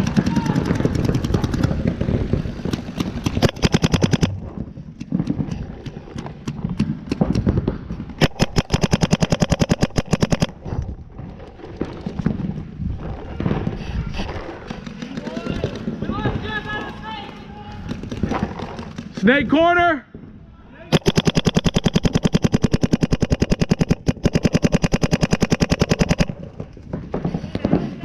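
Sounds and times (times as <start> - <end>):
paintball markers firing: 0.0 - 4.4, 5.0 - 10.6, 14.4 - 15.9, 17.7 - 19.2, 20.9 - 26.8.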